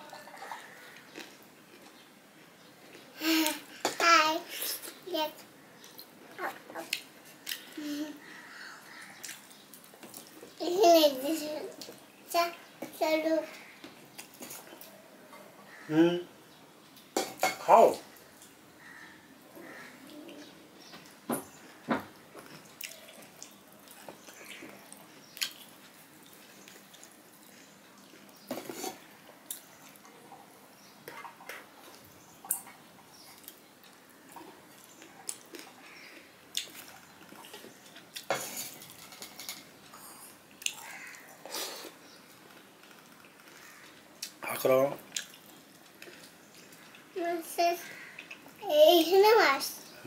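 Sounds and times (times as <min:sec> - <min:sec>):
wet smacking and chewing: 0:22.3 - 0:30.4, 0:31.0 - 0:39.0, 0:40.5 - 0:44.4, 0:45.1 - 0:47.1, 0:48.0 - 0:48.6.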